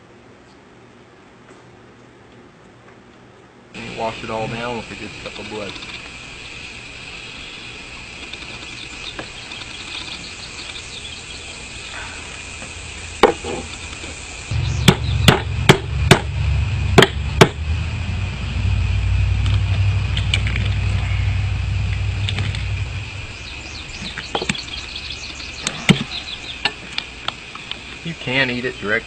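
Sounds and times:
insects chirring: 3.8s - 29.0s
low rumble: 14.5s - 25.6s.

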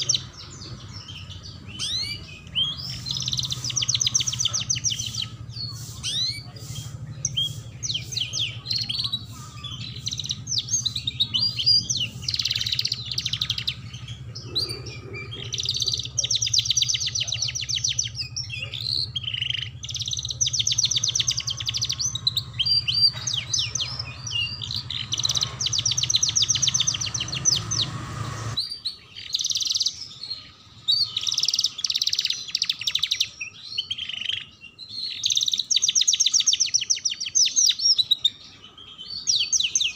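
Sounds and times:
canary singing trills: 0.0s - 39.9s
low steady hum: 1.5s - 28.6s.

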